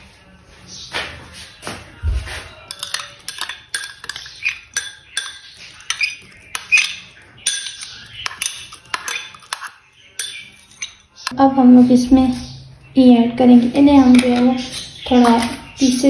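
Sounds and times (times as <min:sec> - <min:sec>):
spoon clinking against glass: 0:02.7 - 0:11.4.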